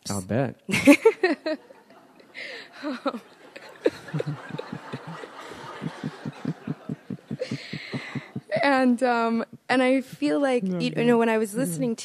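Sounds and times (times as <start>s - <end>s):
people laughing softly: 1.5s - 8.6s.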